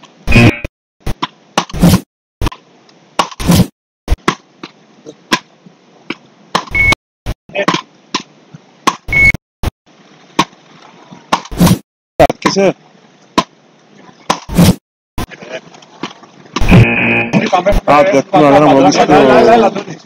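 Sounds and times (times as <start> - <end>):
wooden paddles hitting ball: 1.1 - 2.6, 3.2 - 3.5, 4.1 - 6.8, 7.6 - 9.1, 10.4 - 10.6, 11.3 - 12.6, 13.3 - 13.6, 14.2 - 14.6.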